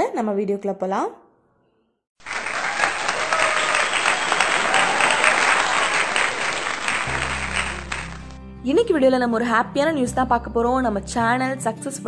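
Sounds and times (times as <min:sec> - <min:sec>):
crowd applauding: 0:02.2 - 0:08.4.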